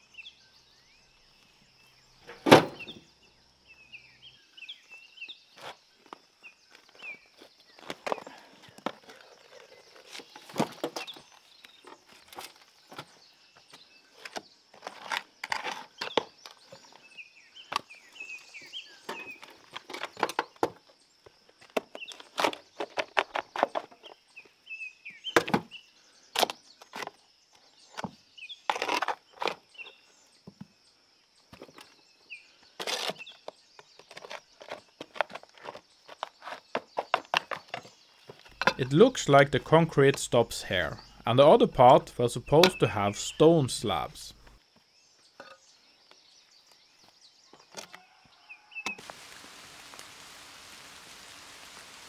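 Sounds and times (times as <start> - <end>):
rubble and wood scraping and knocking: 5.6 - 17.0, 18.9 - 24.2, 32.7 - 43.0.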